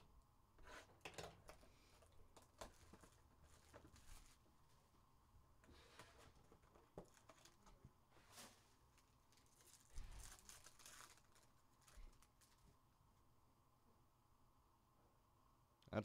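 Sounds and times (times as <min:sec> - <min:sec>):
foil wrapper crinkling and tearing: 0:06.6 - 0:07.8, 0:08.4 - 0:12.8.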